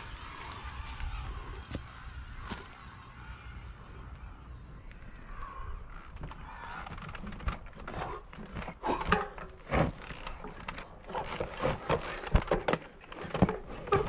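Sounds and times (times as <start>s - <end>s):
bike tyres crackling over leaves: 0.0s - 4.2s.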